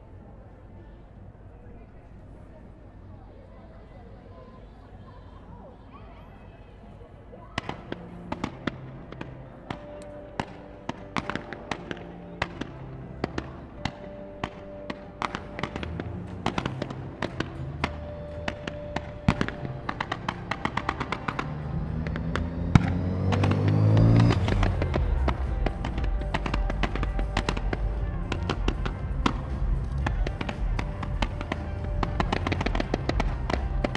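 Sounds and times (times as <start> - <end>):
fireworks exploding: 7.6 - 33.9
music with long held notes: 7.7 - 33.9.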